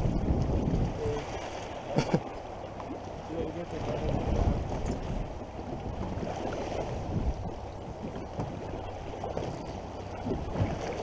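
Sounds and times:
water slapping against boat: 0:00.0 - 0:11.0
wind rumbling on microphone: 0:00.0 - 0:11.0.

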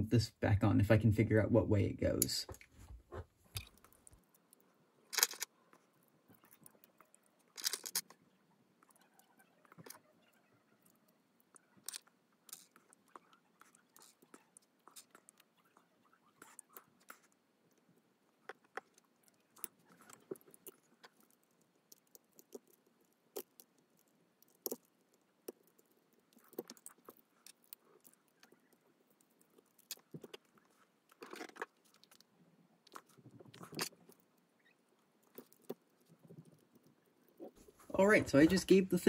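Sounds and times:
small plastic parts clicking: 0:03.5 - 0:08.2, 0:10.8 - 0:15.8, 0:16.4 - 0:34.4, 0:35.0 - 0:37.5.

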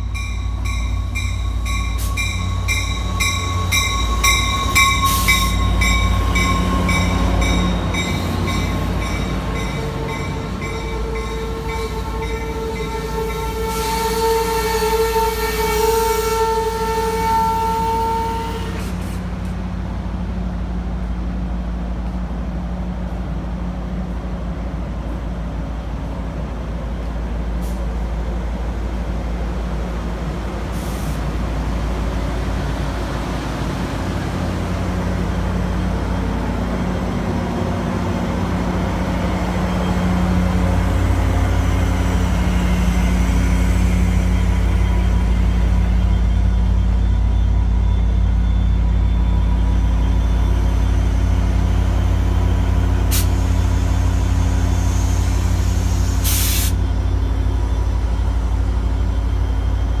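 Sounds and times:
diesel locomotive idling: 0:00.0 - 1:00.0
air hissing: 0:53.1 - 0:53.6, 0:54.8 - 0:56.8.

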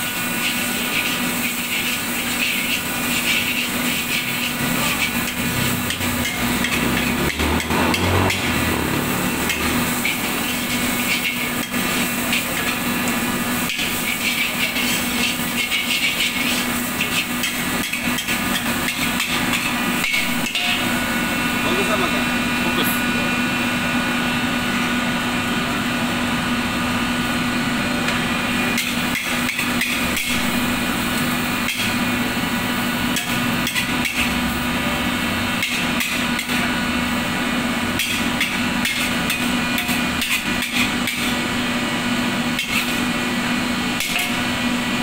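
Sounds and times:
spatula scraping a metal wok: 0:00.0 - 0:21.4, 0:28.5 - 0:36.8, 0:37.9 - 0:41.5, 0:42.4 - 0:43.1, 0:44.0 - 0:44.6.

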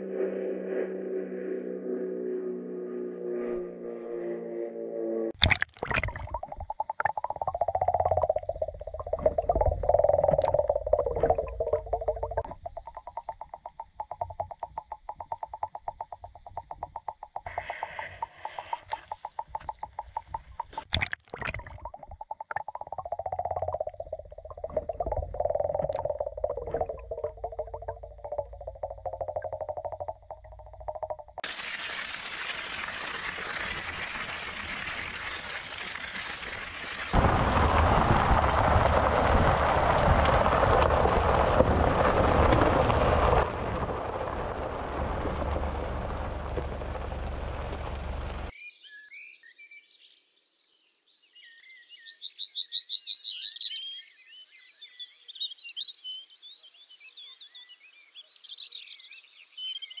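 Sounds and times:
bike tyres rolling on gravel: 0:31.4 - 0:48.5
car tyres rumbling on gravel: 0:31.4 - 0:48.5
birds singing: 0:48.5 - 1:00.0.

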